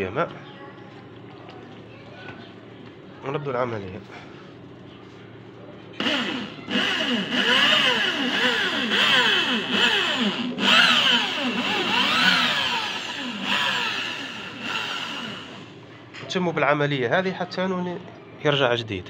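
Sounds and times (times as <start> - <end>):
electric drill motor whine: 6.0 - 15.8.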